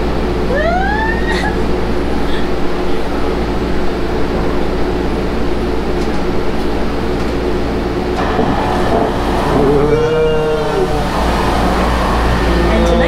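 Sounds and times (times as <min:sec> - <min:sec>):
rumbling drone in gondola: 0:00.0 - 0:13.0.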